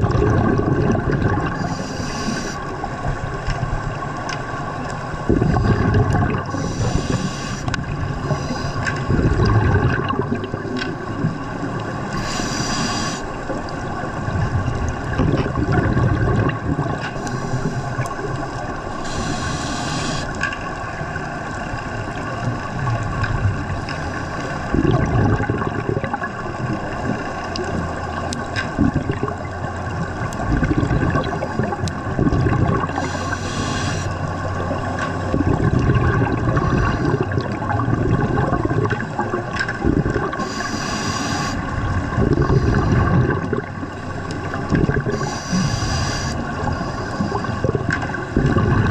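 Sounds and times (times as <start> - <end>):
steady hum: 0.0 - 22.1
exhaled bubbles rumbling: 0.0 - 48.9
diver regulator breathing: 1.4 - 2.9, 5.3 - 9.5, 12.0 - 13.7, 17.0 - 20.6, 32.8 - 35.4, 36.4 - 37.6, 40.0 - 43.7, 44.3 - 48.9.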